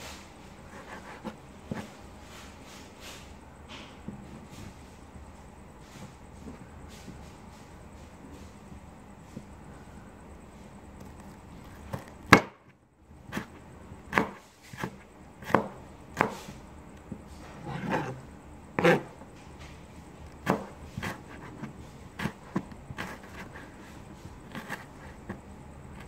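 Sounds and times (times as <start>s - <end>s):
knife chopping on cutting board: 13.3s - 16.6s, 18.8s - 19.1s, 20.4s - 23.4s.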